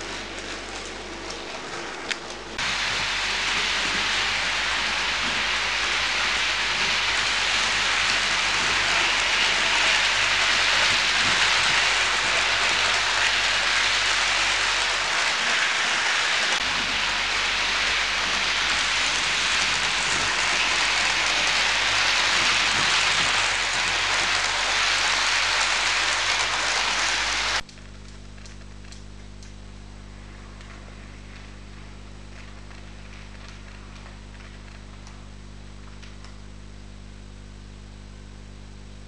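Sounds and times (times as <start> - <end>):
model trains rattling on track: 0.0 - 27.6
quiet steady hum: 27.4 - 39.0.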